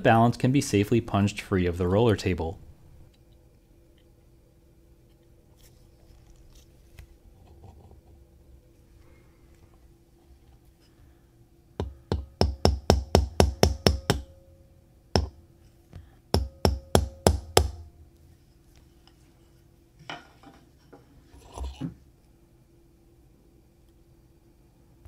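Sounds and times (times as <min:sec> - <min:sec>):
sharp metal taps: 0:11.8 - 0:14.3.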